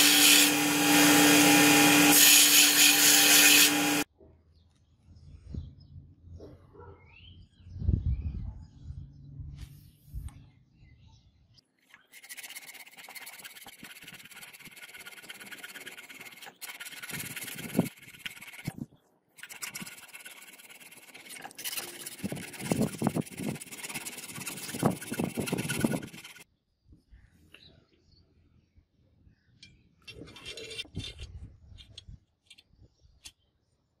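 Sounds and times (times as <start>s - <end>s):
hand file rasping on brass: 12.2s - 18.8s, 19.4s - 26.4s.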